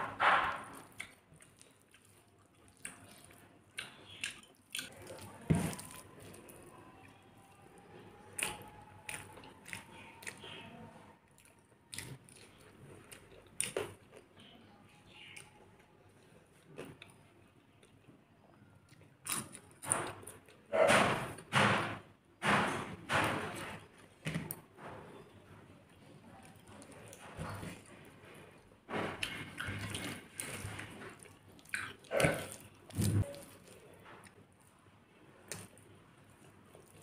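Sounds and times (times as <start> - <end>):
chewing and biting: 0.4 - 6.6, 8.3 - 10.7, 11.3 - 14.3, 18.9 - 20.6, 29.0 - 34.7.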